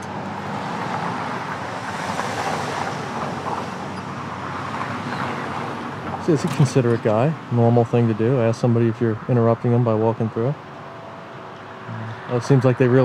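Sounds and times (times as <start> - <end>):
car passing by: 0.0 - 6.9.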